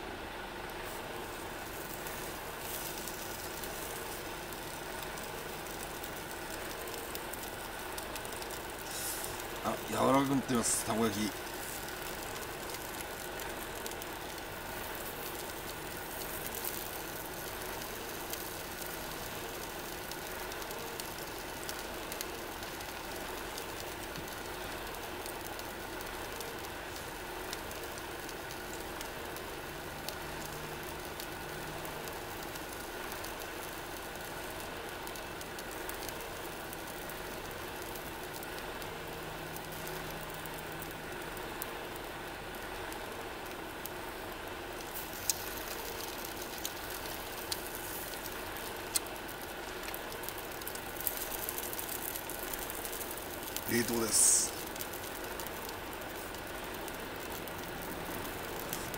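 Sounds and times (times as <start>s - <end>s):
gas burner hissing: 0.2s - 58.9s
faint sizzling: 42.6s - 58.9s.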